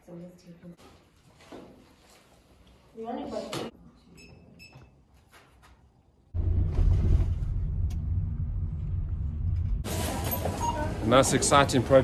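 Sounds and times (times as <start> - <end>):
loud steady low rumble: 6.4 - 9.9.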